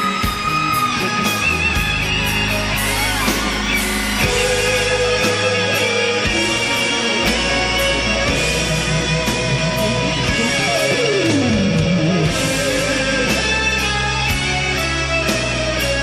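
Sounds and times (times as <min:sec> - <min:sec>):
rock music with electric guitar: 0:00.0 - 0:16.0
falling pitch glide: 0:07.4 - 0:13.9.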